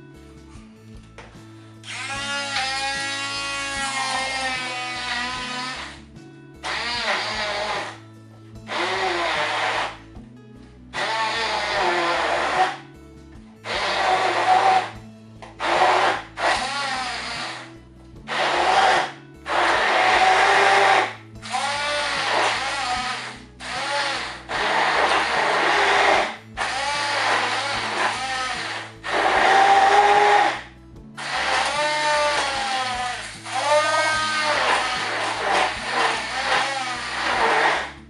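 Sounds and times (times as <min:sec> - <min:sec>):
immersion blender blending: 0:06.6 - 0:08.0, 0:08.7 - 0:10.0, 0:11.0 - 0:12.8, 0:13.6 - 0:15.0, 0:15.6 - 0:17.7, 0:18.3 - 0:30.6, 0:31.2 - 0:38.0.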